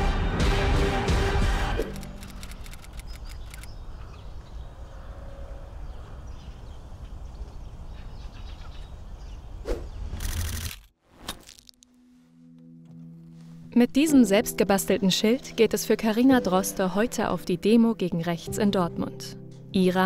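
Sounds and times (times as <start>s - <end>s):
music: 0.0s - 2.6s, 11.8s - 20.0s.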